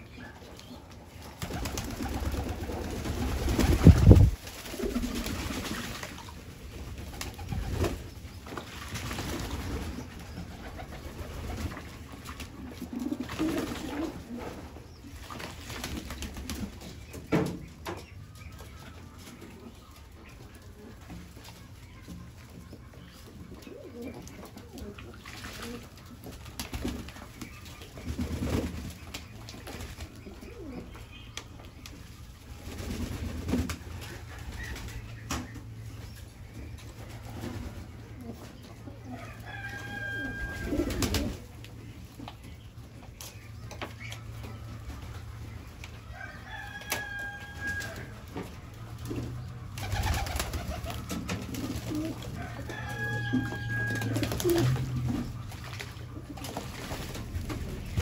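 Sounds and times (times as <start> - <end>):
pigeons cooing: 9.2 - 15.0, 22.7 - 26.2, 29.9 - 31.2, 37.1 - 41.7, 48.6 - 58.0.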